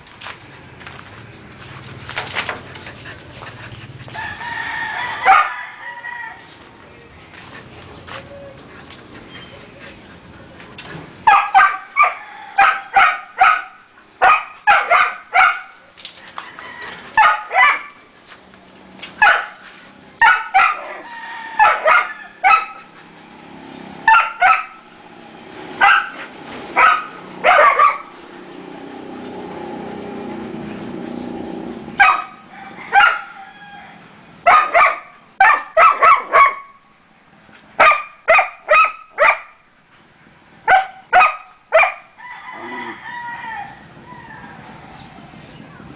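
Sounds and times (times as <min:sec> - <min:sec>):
dog barking: 0:05.2 - 0:05.6, 0:11.2 - 0:15.8, 0:17.2 - 0:18.0, 0:19.2 - 0:19.6, 0:20.2 - 0:21.0, 0:21.6 - 0:22.9, 0:24.0 - 0:24.8, 0:25.8 - 0:28.1, 0:32.0 - 0:33.3, 0:34.4 - 0:36.8, 0:37.8 - 0:39.6, 0:40.7 - 0:42.1.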